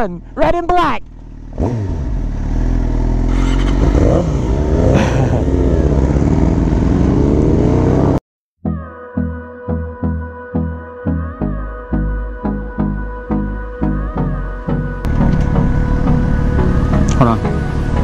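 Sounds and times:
sport bike engine revving: 0:01.1 - 0:08.2.

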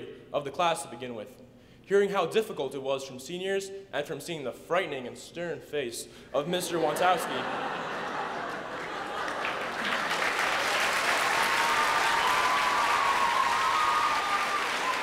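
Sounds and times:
audience applause: 0:07.4 - 0:15.0
voices cheering: 0:08.9 - 0:15.0.

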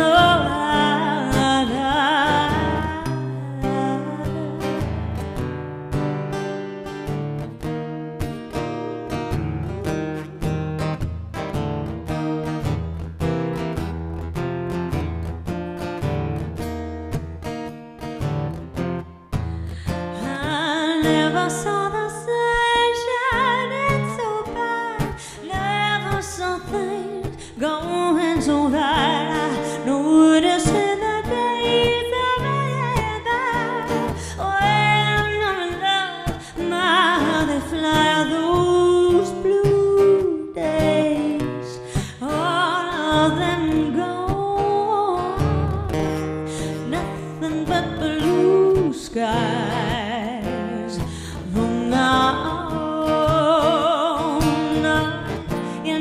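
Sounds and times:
woman singing into microphone: 0:00.0 - 0:05.5, 0:08.5 - 0:10.6, 0:19.3 - 0:56.0
acoustic guitar strumming: 0:00.0 - 0:56.0.

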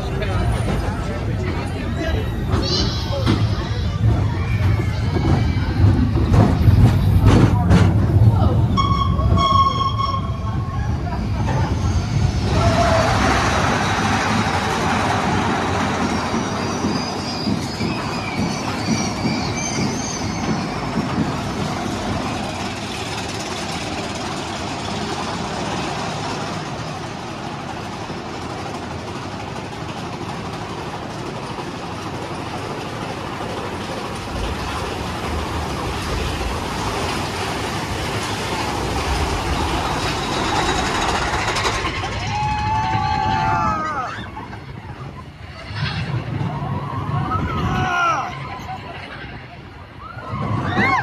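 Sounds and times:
roller coaster wheels clattering: 0:00.0 - 0:51.0
deep rumble: 0:20.6 - 0:47.7.

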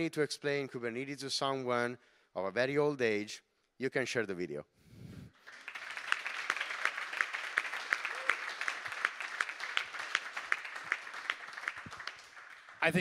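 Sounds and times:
audience applauding: 0:05.4 - 0:13.0
person clapping close by: 0:05.7 - 0:12.7.

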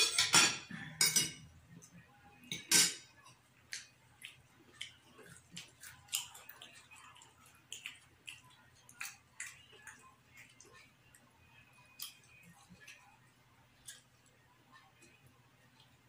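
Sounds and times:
cutlery tapping on plates: 0:00.0 - 0:01.5, 0:02.5 - 0:03.1
chewing: 0:03.2 - 0:16.0.

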